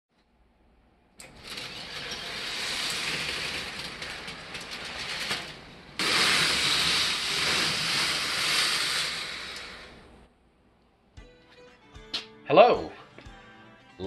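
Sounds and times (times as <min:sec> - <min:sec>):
roller coaster wheels rattling: 0:01.2 - 0:10.2.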